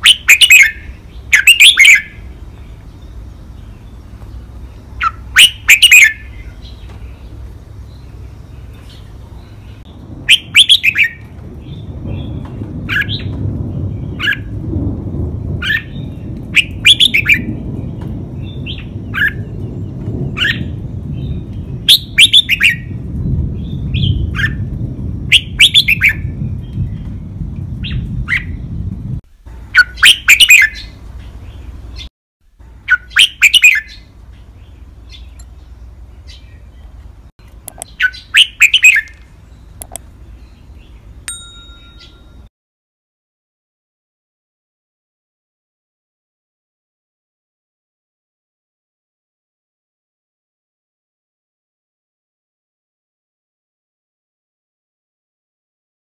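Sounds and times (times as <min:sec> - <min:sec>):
bird singing: 0:00.0 - 0:14.6, 0:15.5 - 0:32.1, 0:32.7 - 0:42.5
low rumble: 0:06.2 - 0:29.8.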